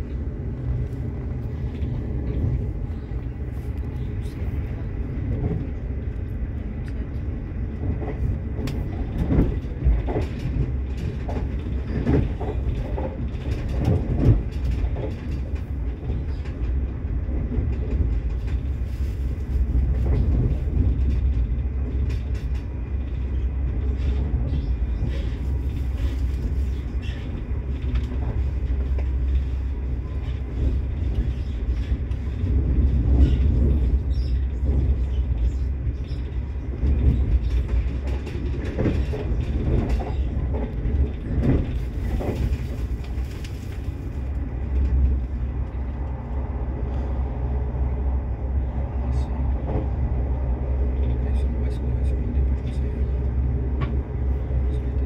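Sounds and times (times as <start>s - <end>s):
train rumble inside carriage: 0.0s - 55.0s
wheels clattering on track: 3.7s - 46.4s.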